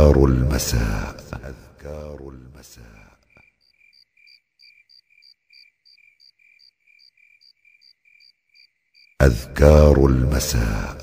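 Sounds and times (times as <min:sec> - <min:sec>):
cricket chirping: 0:02.8 - 0:09.4.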